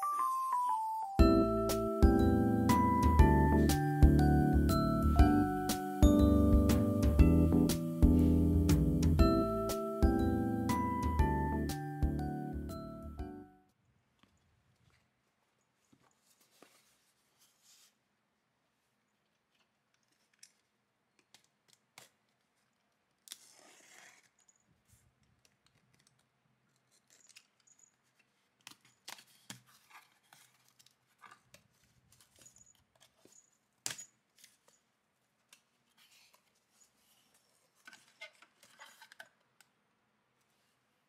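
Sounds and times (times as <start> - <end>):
packing tape peeled and torn: 19.9 - 24.5.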